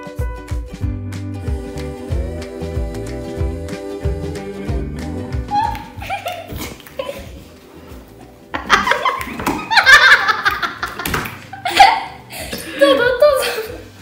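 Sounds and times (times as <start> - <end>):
loud laughter: 8.6 - 12.2.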